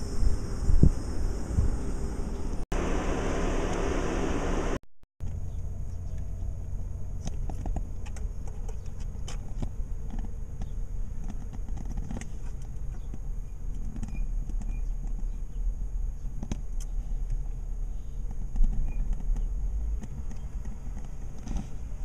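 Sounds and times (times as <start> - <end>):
steady low rumble: 0.0 - 11.2.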